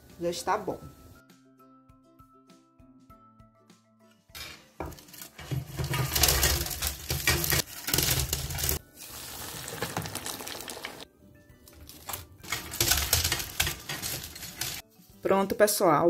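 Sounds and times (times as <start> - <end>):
hot oil sizzling: 5.0 - 11.0, 12.0 - 14.8.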